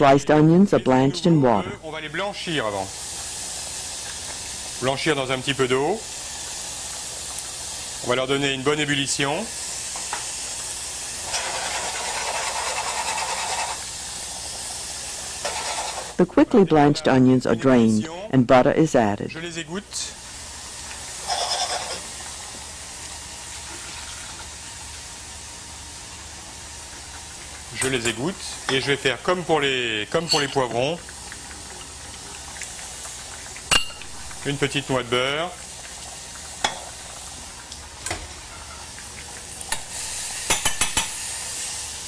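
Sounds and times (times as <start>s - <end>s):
butter sizzling in a saucepan: 0.7s - 18.3s, 19.3s - 42.0s
saucepan scraping and ringing: 21.2s - 22.1s, 30.2s - 30.7s
utensil clinking against pan: 30.2s - 30.7s.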